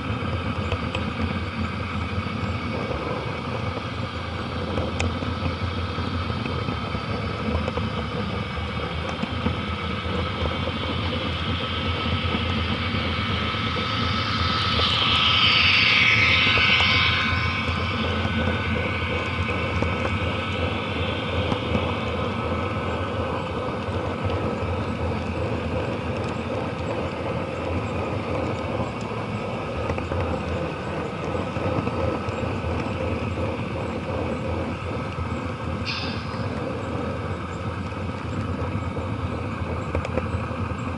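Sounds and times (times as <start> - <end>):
model train wheels rumbling: 16.6 - 40.9.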